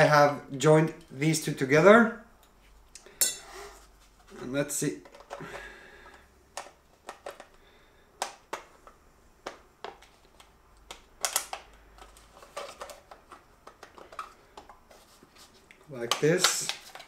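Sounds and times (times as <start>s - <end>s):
plastic parts clicking: 5.0s - 7.6s, 8.2s - 15.0s, 16.0s - 17.0s.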